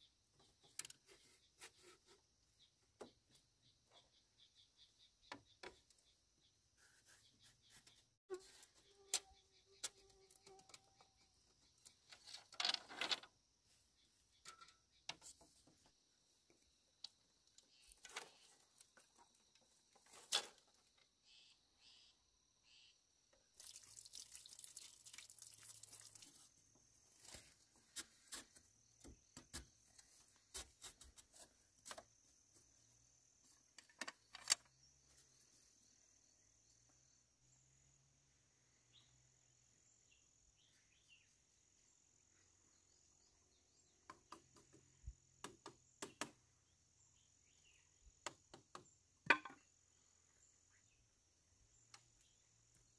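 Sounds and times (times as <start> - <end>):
forest insects chirring: 8.5 - 45.8
taps and knocks of handwork: 45.4 - 46.4.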